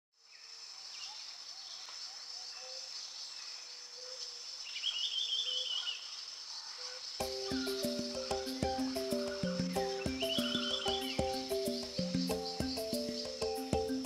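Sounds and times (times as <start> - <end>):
high insect chorus: 0.2 - 14.0
birds calling: 0.9 - 14.0
warbling bird call: 6.7 - 14.0.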